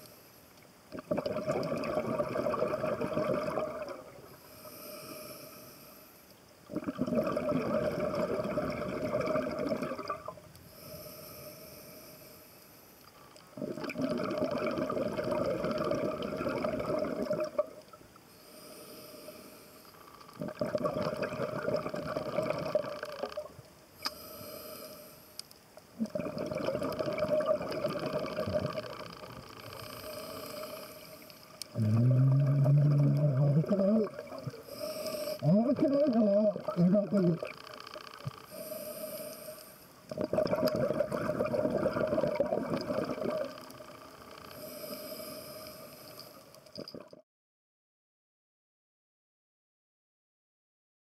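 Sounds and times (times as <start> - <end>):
bubbling exhalations through regulator: 0.9 - 4.2, 6.7 - 10.3, 13.6 - 17.8, 20.4 - 23.5, 26.0 - 29.1, 31.7 - 34.7, 35.4 - 37.6, 40.1 - 43.7
hissing inhalation: 4.4 - 6.2, 18.4 - 20.0, 24.0 - 25.4, 29.8 - 33.1, 34.5 - 35.6, 38.5 - 39.9, 44.5 - 46.5.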